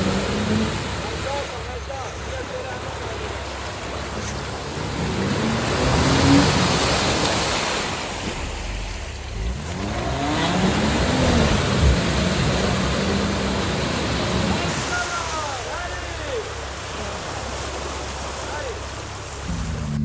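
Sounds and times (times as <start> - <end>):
car engine revving hard: 0.0 - 1.3, 4.3 - 7.6, 8.2 - 15.1, 19.5 - 20.0
tyres churning mud: 0.0 - 20.0.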